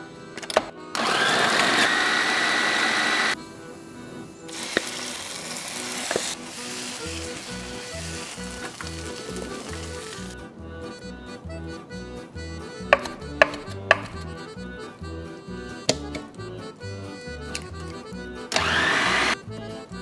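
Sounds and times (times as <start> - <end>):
accordion music with beat: 0.0 - 20.0
food processor motor grinding: 1.0 - 3.4, 18.5 - 19.4
oil sizzling in frying pan: 4.6 - 9.8.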